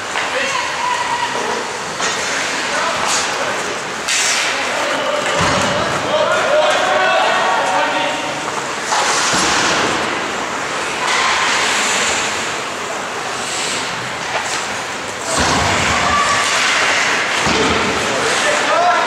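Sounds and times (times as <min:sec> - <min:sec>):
skate blades on ice: 0:02.0 - 0:05.9
hockey sticks and puck knocking: 0:04.0 - 0:06.0.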